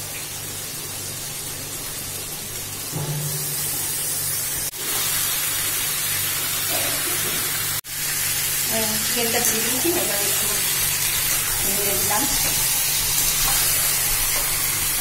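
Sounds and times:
chicken sizzling in hot oil: 0.0 - 15.0.

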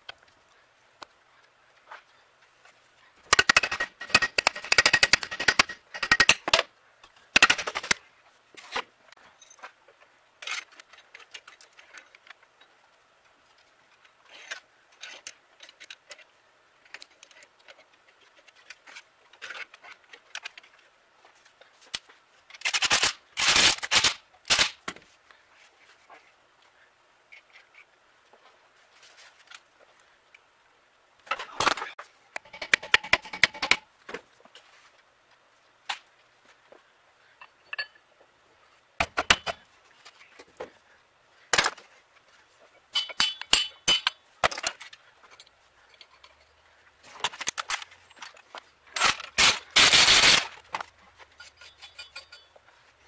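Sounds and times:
metal clinks and clatters: 42.9 - 52.7
impact wrench rattling: 49.0 - 50.7.

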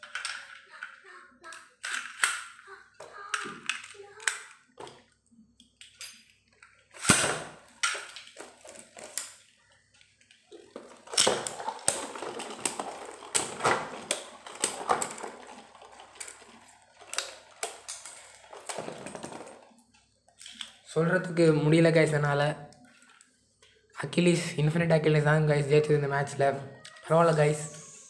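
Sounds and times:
spinning top launch: 6.9 - 7.7.

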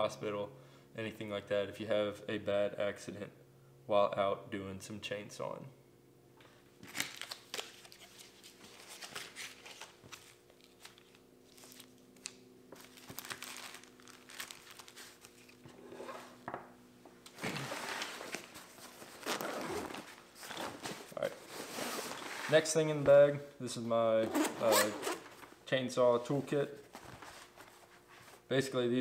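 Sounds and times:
plastic packets crinkling: 6.8 - 15.6
nylon backpack rustling: 12.8 - 16.4, 17.4 - 22.6.

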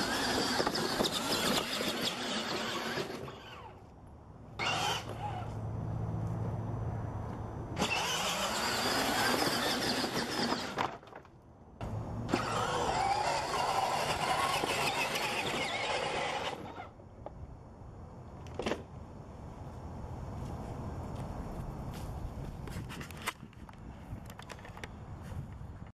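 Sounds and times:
toy electric motor whining: 0.0 - 3.8, 4.6 - 5.5, 7.8 - 10.9, 12.3 - 16.9.

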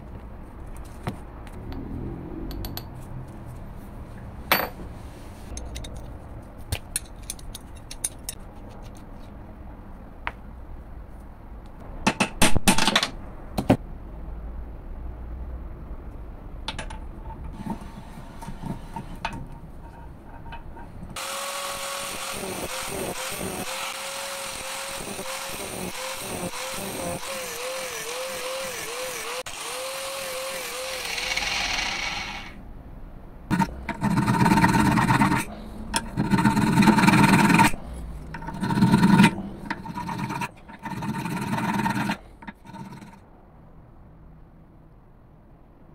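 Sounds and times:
cut-off wheel cutting steel: 21.2 - 32.6, 38.4 - 43.2
file rasping on steel: 33.5 - 37.8, 38.4 - 43.2.

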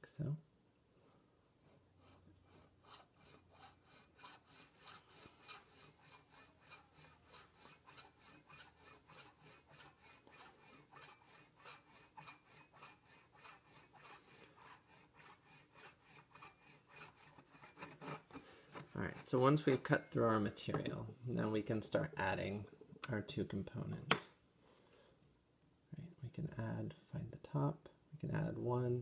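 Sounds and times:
pull saw cutting wax: 2.1 - 20.1.

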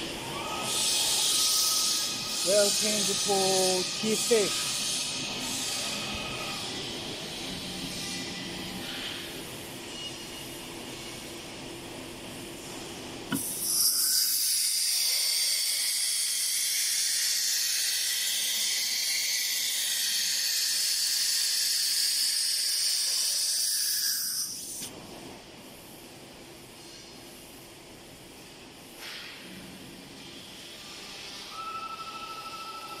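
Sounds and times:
compressed air hissing: 23.0 - 24.9.

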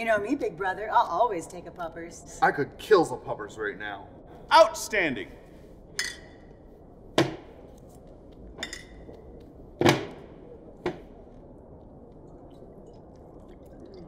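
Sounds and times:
glass bottles knocking and clinking: 6.0 - 6.4, 8.6 - 9.0.

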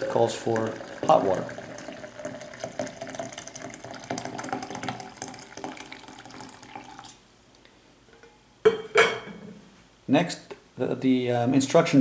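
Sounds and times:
hot water pouring onto coffee grounds: 0.0 - 7.2.

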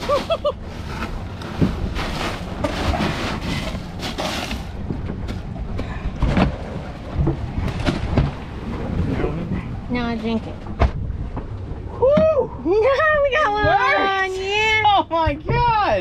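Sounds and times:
boat engine rumble: 0.0 - 16.0.

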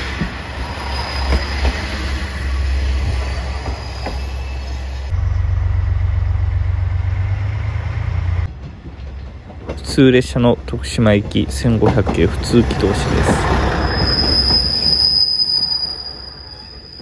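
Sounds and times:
train wheels on track: 0.0 - 17.0
diesel engine running: 5.1 - 8.5.

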